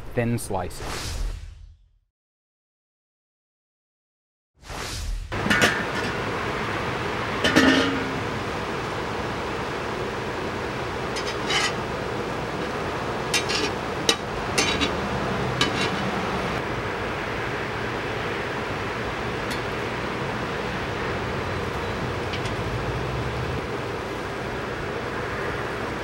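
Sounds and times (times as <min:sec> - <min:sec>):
metal utensils clinking on cookware: 0:07.4 - 0:08.2, 0:11.1 - 0:11.8, 0:13.3 - 0:16.2, 0:21.6 - 0:23.2.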